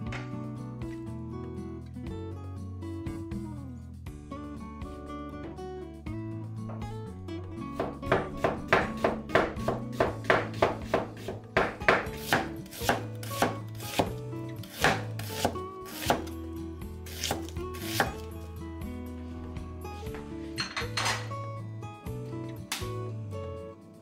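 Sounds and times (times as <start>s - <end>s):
background music: 0.0s - 24.0s
knife knocking on wooden board: 7.8s - 12.4s.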